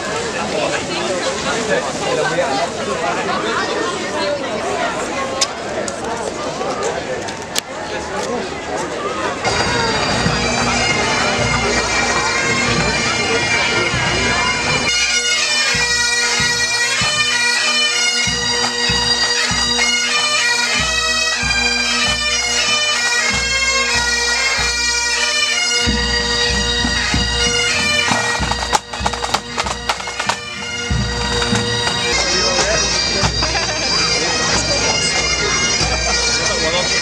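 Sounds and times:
bagpipes playing: 9.4s - 37.0s
snare and bass drums: 25.8s - 33.6s.

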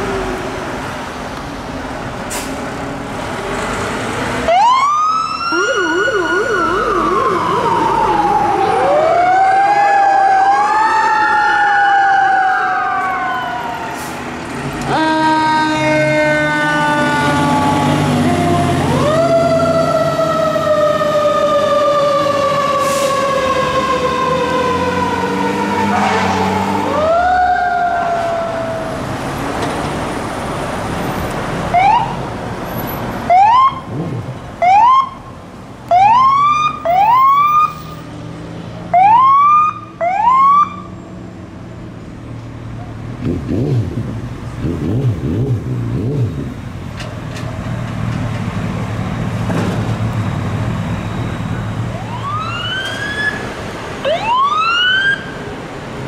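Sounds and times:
emergency vehicle siren wailing: 4.4s - 38.1s, 38.8s - 41.4s, 48.6s - 56.0s.

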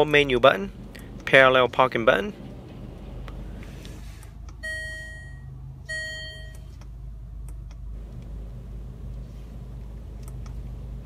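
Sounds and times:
engine idling hum: 0.0s - 11.0s
electronic dashboard chimes: 4.6s - 6.7s.

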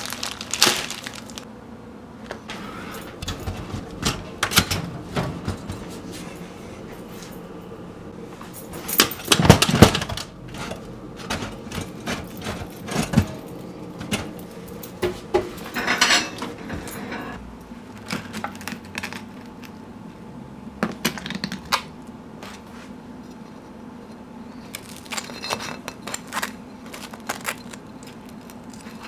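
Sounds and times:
toaster and plate clattering: 2.4s - 6.6s, 8.6s - 17.4s.

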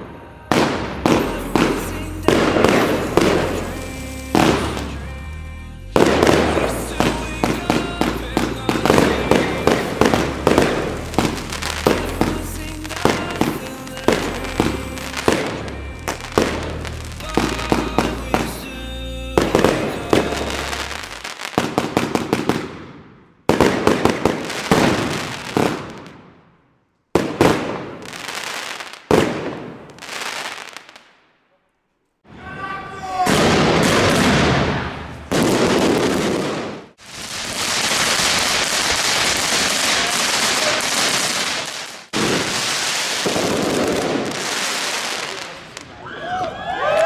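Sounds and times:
loud firework bursts: 0.0s - 31.2s, 33.1s - 45.9s
electronic dance music: 1.0s - 21.2s
firework cake bangs: 29.1s - 30.0s, 33.2s - 45.5s.

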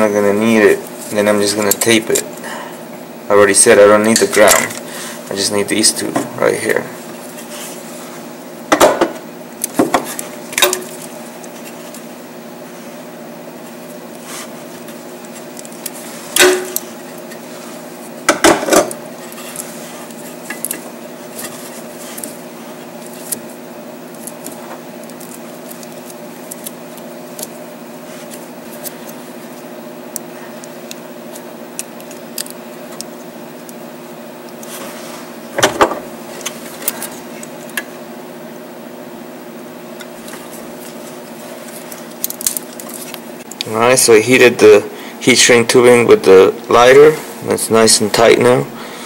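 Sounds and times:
steady background hum: 0.0s - 49.0s
light handling ticks: 19.2s - 33.8s
wire cutters snapping: 24.1s - 33.8s, 41.8s - 43.6s.

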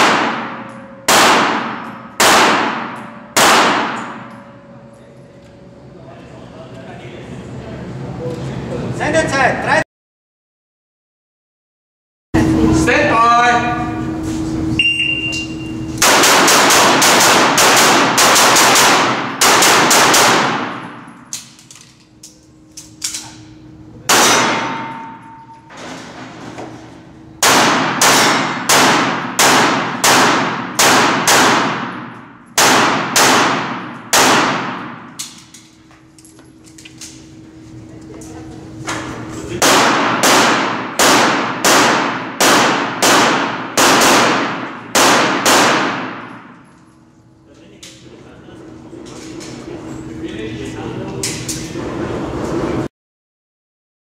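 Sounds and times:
pistol shots echoing: 0.0s - 4.3s, 16.0s - 21.0s, 24.1s - 25.2s, 27.4s - 35.2s, 39.6s - 46.5s
shot timer beep: 14.8s - 15.8s.

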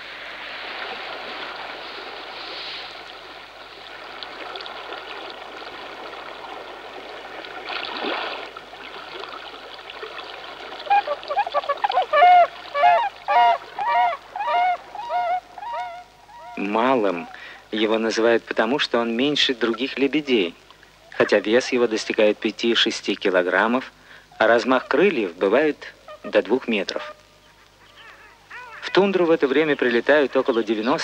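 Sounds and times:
steady rushing hiss: 0.0s - 7.7s, 8.4s - 31.0s
swans honking: 10.7s - 17.4s, 26.0s - 31.0s.

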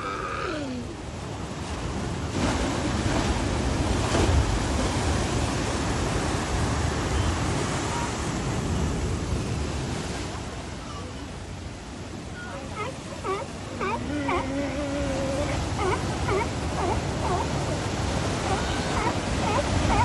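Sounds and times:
surf breaking against rocks: 1.4s - 10.7s.

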